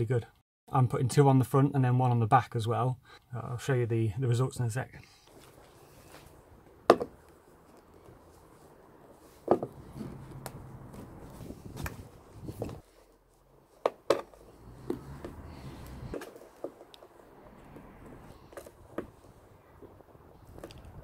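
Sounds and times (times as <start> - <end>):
faint handling rustle: 5.0 - 6.4, 7.3 - 13.8.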